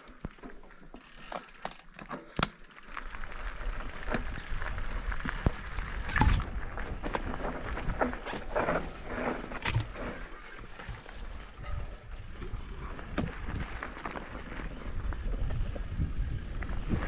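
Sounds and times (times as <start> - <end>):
tyres rolling over stones: 0.0 - 11.6
bike rattling and knocking: 0.1 - 14.1
wind on microphone: 14.8 - 17.0.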